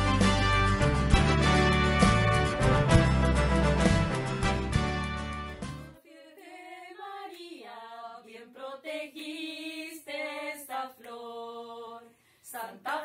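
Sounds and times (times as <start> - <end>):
instrumental music: 0.0 - 6.0
women singing a hymn: 6.0 - 13.0.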